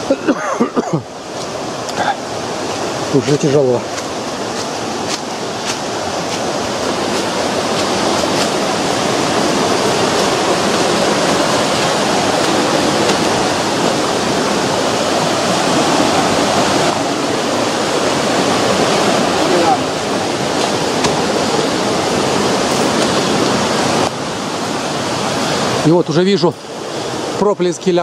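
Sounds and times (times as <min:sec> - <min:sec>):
river rushing: 0:00.0 - 0:28.0
footsteps on leaf litter: 0:02.8 - 0:13.5.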